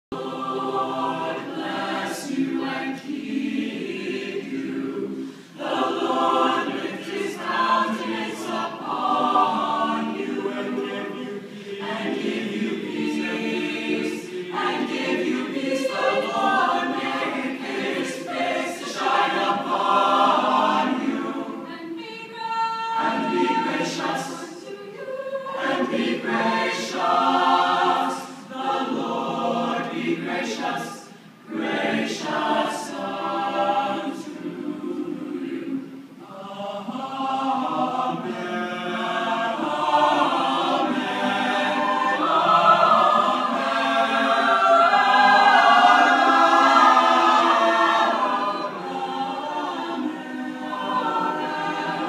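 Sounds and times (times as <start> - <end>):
a cappella choir singing: 0.0 - 52.0.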